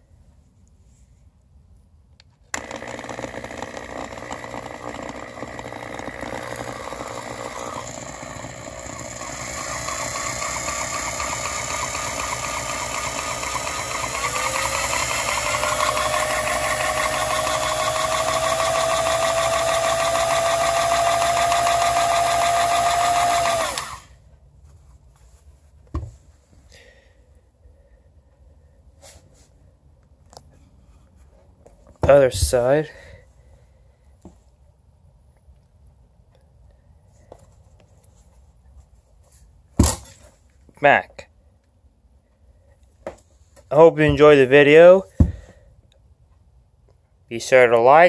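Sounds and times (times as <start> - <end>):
reciprocating saw whining: 2.6 - 24.1.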